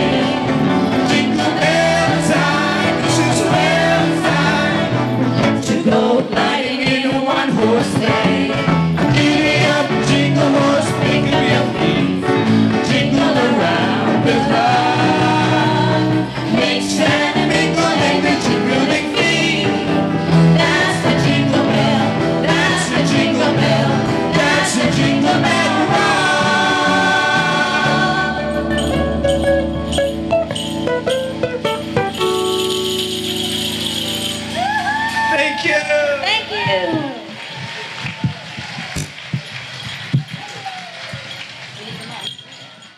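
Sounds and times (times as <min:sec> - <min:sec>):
singers: 0:00.0 - 0:28.9
drum kit: 0:00.0 - 0:35.3
electric bass: 0:00.0 - 0:35.4
keyboard: 0:00.0 - 0:37.6
shaken hand percussion: 0:24.4 - 0:35.3, 0:37.6 - 0:42.9.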